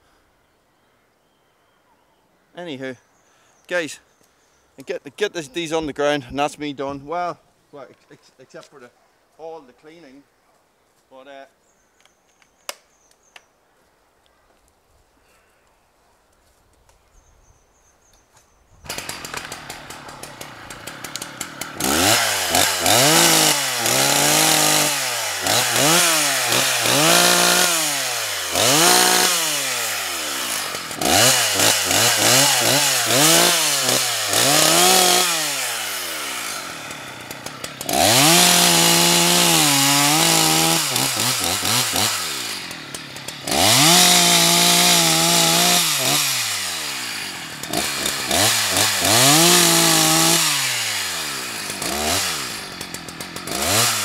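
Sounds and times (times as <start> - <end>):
chainsaw revving: 18.8 - 54.0
chainsaw cutting tree trunk: 18.9 - 54.0.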